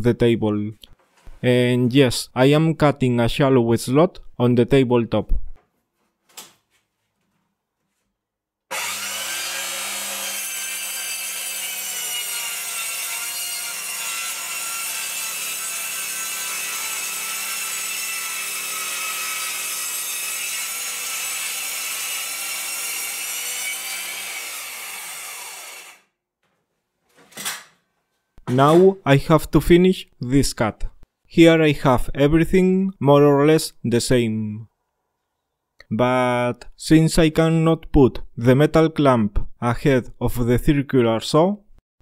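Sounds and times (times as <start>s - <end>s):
circular saw cutting wood: 8.7s - 26.1s.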